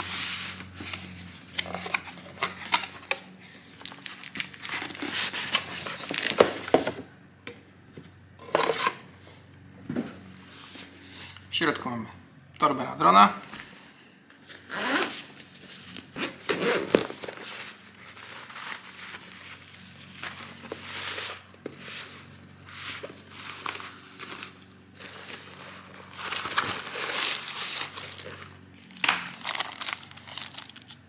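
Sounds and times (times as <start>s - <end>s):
zipper being pulled open: 14.6s - 15.4s
fabric bag rustling: 23.1s - 30.8s.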